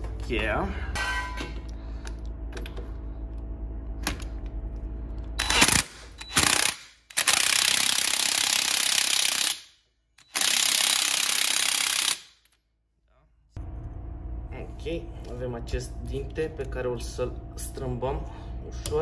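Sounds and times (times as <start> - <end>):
impact wrench hammering: 5.4 - 12.4.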